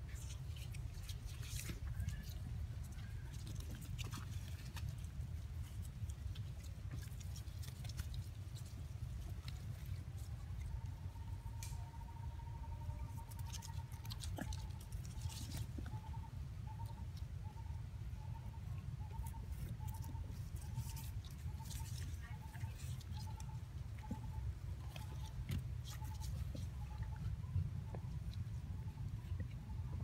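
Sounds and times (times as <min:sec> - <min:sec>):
monkeys scratching on bark: 0:00.0 - 0:11.8, 0:13.0 - 0:16.2, 0:19.1 - 0:27.9.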